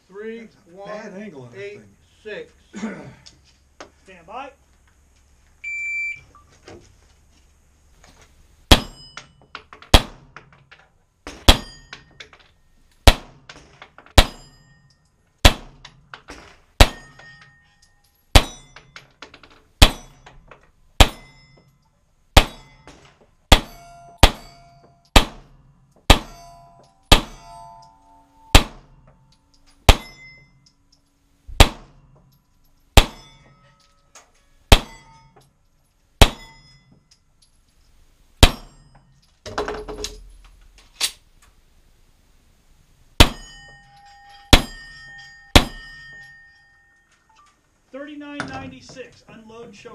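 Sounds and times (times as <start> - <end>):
steel plate targets clanging: 8.6 - 40.7, 43.1 - 49.6
pistol shots: 8.7 - 9.0, 9.9 - 10.3, 13.0 - 13.4, 14.1 - 14.5, 15.4 - 15.8, 16.8 - 17.2, 18.4 - 18.6, 19.8 - 20.2, 21.0 - 21.3, 22.4 - 22.8, 23.5 - 27.5, 28.5 - 29.0, 29.9 - 30.2, 31.6 - 32.0, 33.0 - 33.3, 34.7 - 35.0, 36.2 - 36.5, 38.4 - 38.8, 43.2 - 43.5, 45.6 - 46.0.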